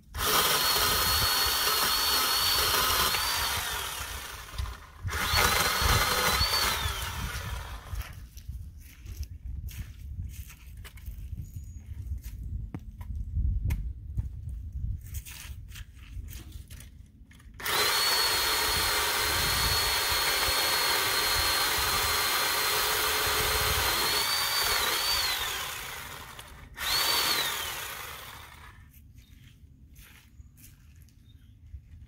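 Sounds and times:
electric saw whining: 0.0 - 8.1, 17.6 - 28.8.

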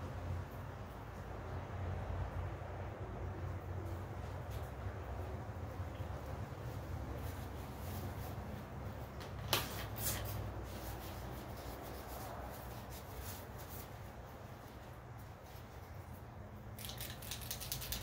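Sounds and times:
light rubbing and rustling: 6.6 - 18.0.

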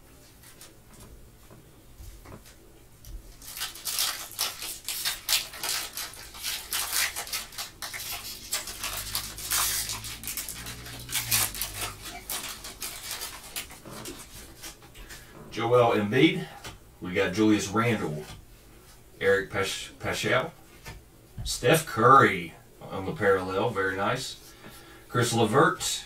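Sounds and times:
foil wrapper crinkling: 3.3 - 14.9.

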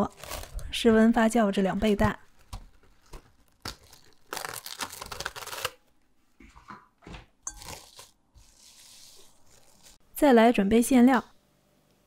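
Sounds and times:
plastic cling film crinkling: 0.0 - 6.1, 7.5 - 10.0.

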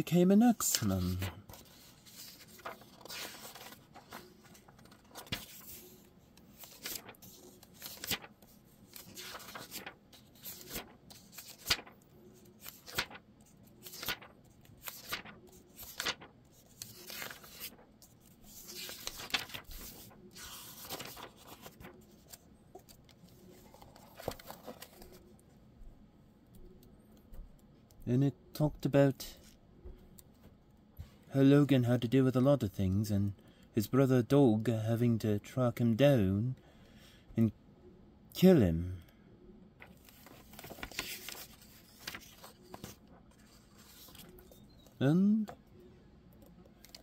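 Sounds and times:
paper pages turning: 0.4 - 25.4, 39.8 - 45.6, 46.4 - 47.0.

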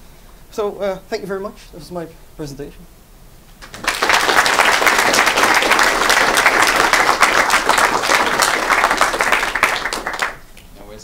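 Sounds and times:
audience applauding: 3.6 - 10.4.

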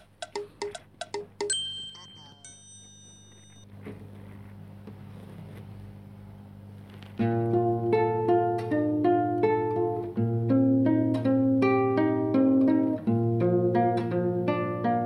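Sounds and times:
faint steady hum: 0.0 - 15.0
chime ringing: 0.2 - 3.7
acoustic guitar picked chords: 7.2 - 15.0.

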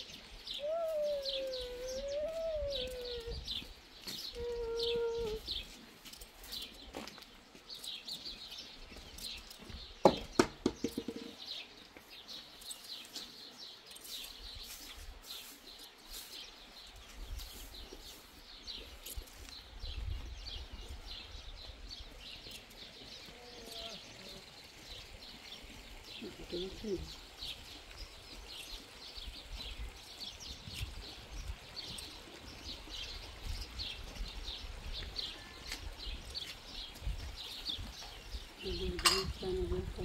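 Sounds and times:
small birds chirping: 0.0 - 40.0
sharp knocks: 10.0 - 11.3.

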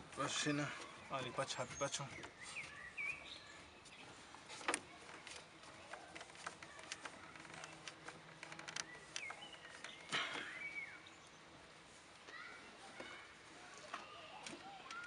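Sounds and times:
bird chirping: 0.0 - 4.3, 6.8 - 11.6.

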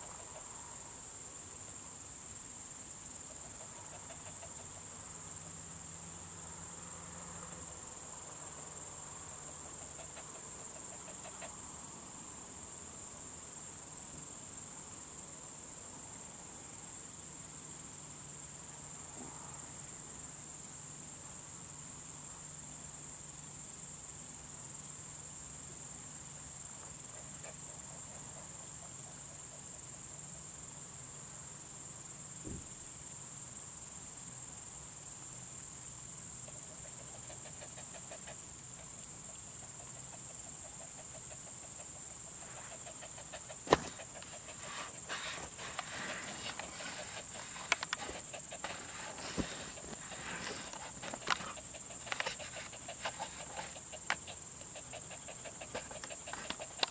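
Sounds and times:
crickets chirring: 0.0 - 56.9.

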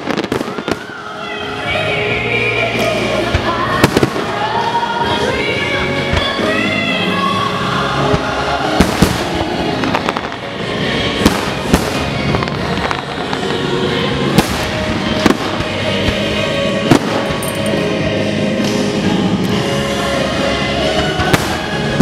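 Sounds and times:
fireworks bursting with sharp bangs: 0.0 - 1.6, 2.7 - 5.2, 8.0 - 17.9, 20.9 - 22.0
music: 0.0 - 22.0.

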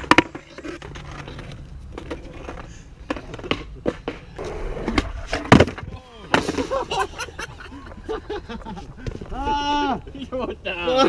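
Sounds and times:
skateboard clack: 0.0 - 6.8
skateboard wheels rolling on concrete: 0.0 - 11.0.

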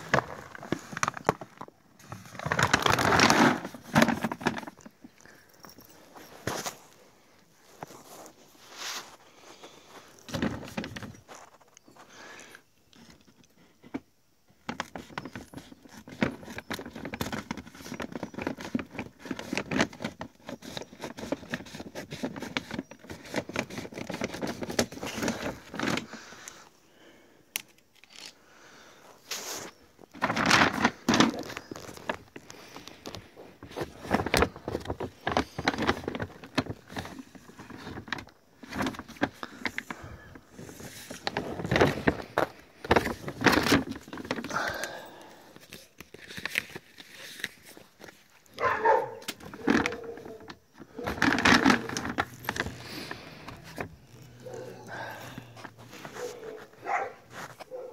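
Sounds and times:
plastic bag crinkling: 0.0 - 6.9, 29.4 - 57.9
kibble shifting: 0.0 - 7.0, 14.6 - 26.6, 29.3 - 57.9.

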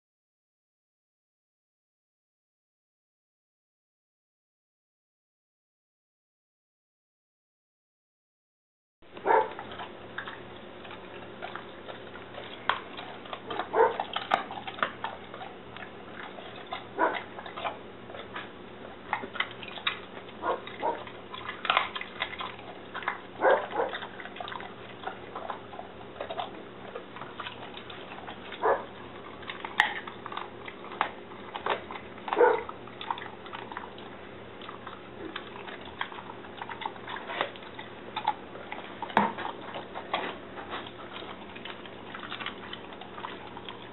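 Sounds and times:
steady low hum: 9.0 - 43.9
dog crunching bones: 9.1 - 43.9.

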